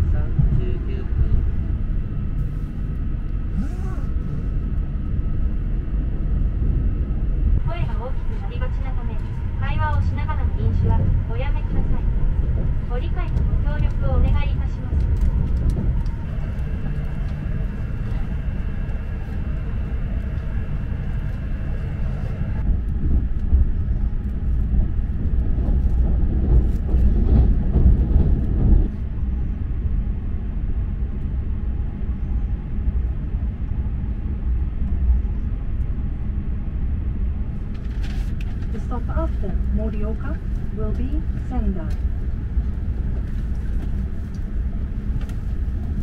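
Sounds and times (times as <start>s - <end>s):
faint steady whine: 0.0s - 25.2s
train rumble from inside: 0.0s - 46.0s.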